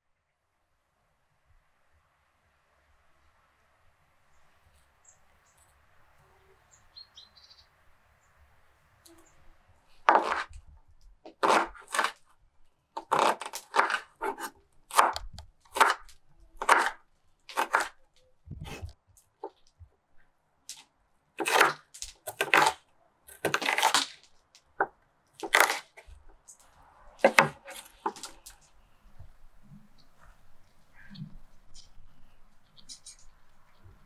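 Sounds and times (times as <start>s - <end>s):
faint steady hiss: 0.5s - 11.2s
knife cutting onion on board: 10.0s - 10.6s, 11.3s - 12.2s, 13.0s - 19.0s, 21.4s - 24.2s, 24.8s - 26.2s, 27.2s - 28.6s.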